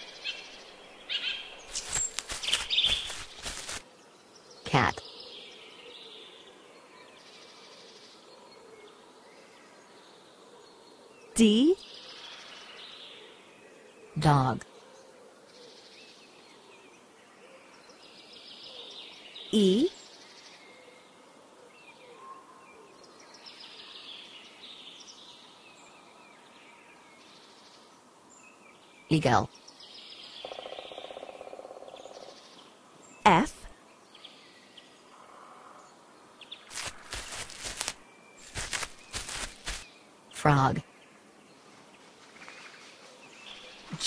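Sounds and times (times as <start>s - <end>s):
buzzing insects: 0.0s - 3.8s, 36.7s - 40.3s
birds chirping: 0.0s - 5.8s, 36.2s - 42.2s
steady background hiss: 0.0s - 11.0s, 15.2s - 30.4s, 31.4s - 44.0s.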